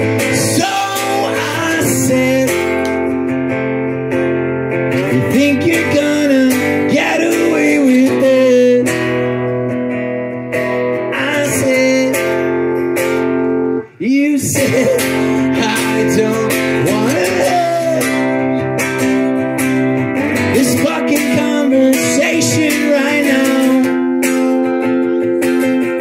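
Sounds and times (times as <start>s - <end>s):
man singing into a microphone: 0.0s - 3.2s, 4.9s - 9.4s, 10.9s - 12.8s, 13.8s - 19.3s, 20.2s - 25.2s
acoustic guitar strumming chords: 0.0s - 26.0s.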